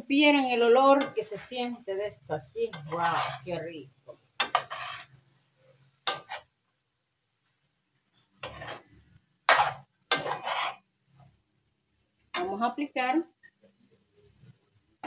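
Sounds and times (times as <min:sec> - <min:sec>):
metal utensil scraping frying pan: 0:00.8 - 0:01.6, 0:02.6 - 0:03.7, 0:04.4 - 0:05.2, 0:06.0 - 0:06.5, 0:08.4 - 0:10.9.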